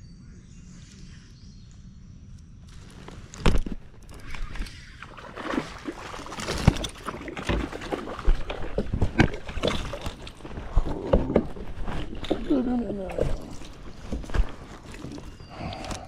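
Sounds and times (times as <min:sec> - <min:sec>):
fish splashing in water: 0:04.1 - 0:15.4.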